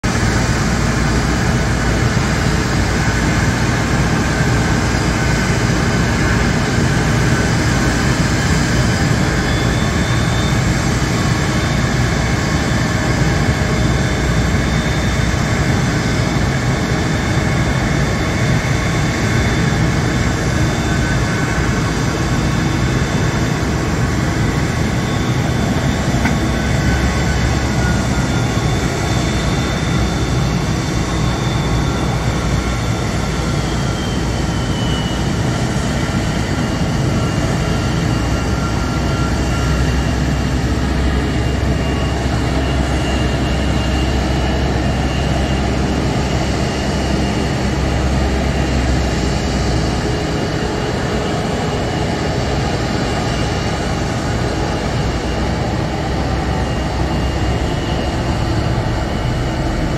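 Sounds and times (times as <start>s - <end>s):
jet engine whine: 0.0s - 59.9s
low rumble: 55.7s - 59.9s.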